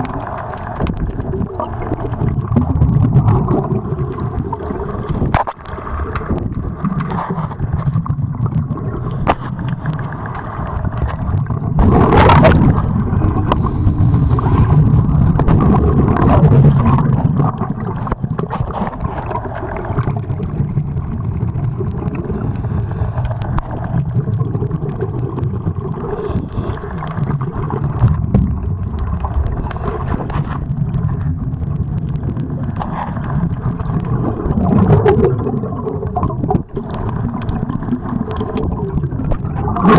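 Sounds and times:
rushing water gurgle: 0.0s - 39.9s
underwater rumble of moving water: 0.0s - 39.9s.

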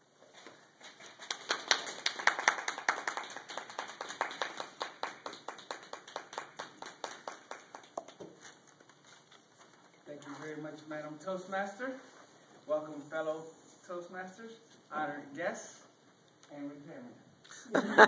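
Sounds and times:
small audience applauding: 1.0s - 8.6s.

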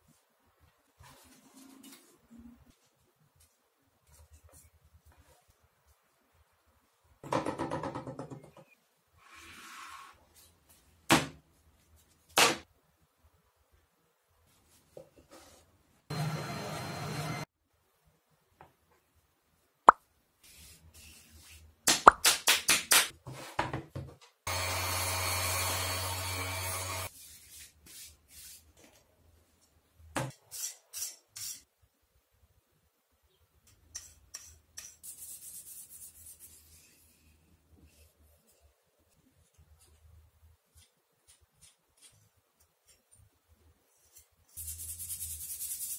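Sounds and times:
orbital sander running: 24.5s - 27.1s.

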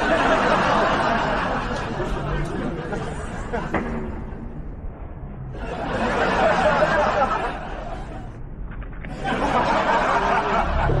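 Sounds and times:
people laughing: 0.0s - 4.5s, 5.5s - 11.0s.

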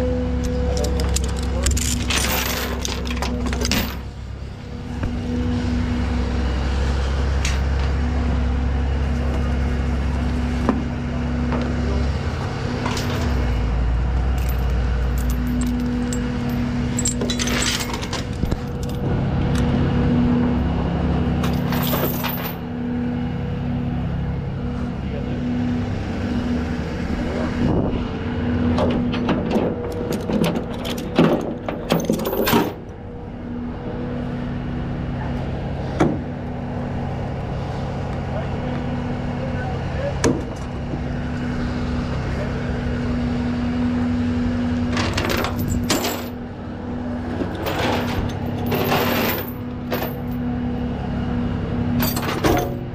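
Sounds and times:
diesel engine running: 0.0s - 52.9s
chains and hooks clinking: 0.8s - 4.1s, 14.3s - 19.0s, 21.4s - 22.6s, 30.2s - 32.8s, 45.0s - 46.4s, 47.5s - 50.4s, 52.0s - 52.8s.

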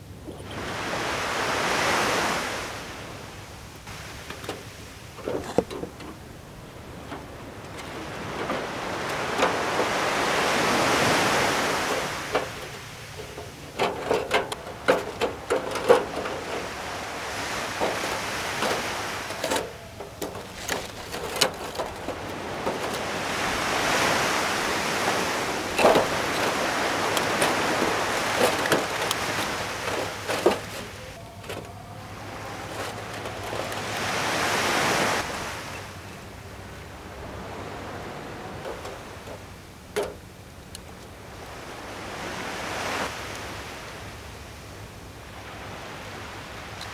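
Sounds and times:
surf washing on shore: 0.0s - 46.9s
metal grill clanking: 11.8s - 23.6s, 25.0s - 31.8s.

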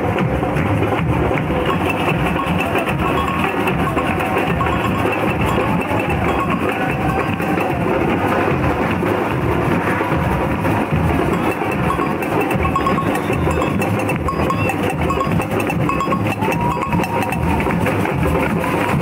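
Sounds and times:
crowd noise: 0.0s - 19.0s
parade music with percussion: 0.0s - 19.0s
short high tones: 11.3s - 17.5s.

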